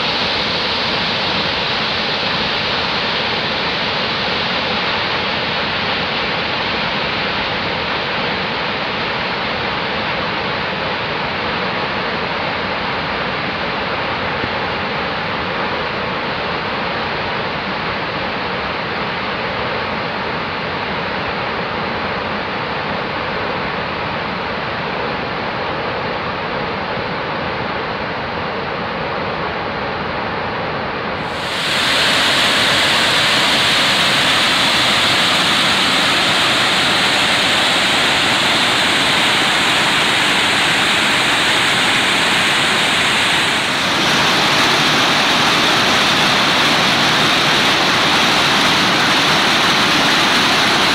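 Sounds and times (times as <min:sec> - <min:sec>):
stream rushing over boulders: 0:31.2 - 0:50.9
waterfall rushing: 0:31.2 - 0:50.9.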